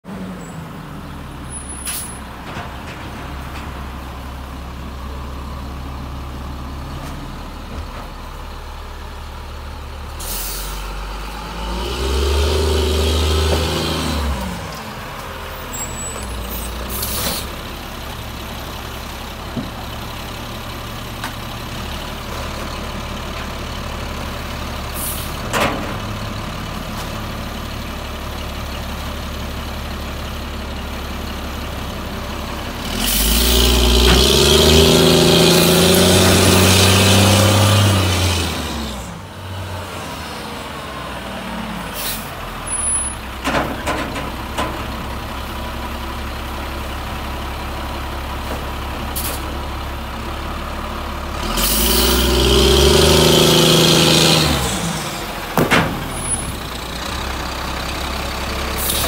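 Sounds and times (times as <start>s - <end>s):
garbage truck diesel engine: 0.0s - 59.0s
air brake hisses: 10.2s - 10.8s, 42.0s - 42.9s, 58.8s - 59.0s.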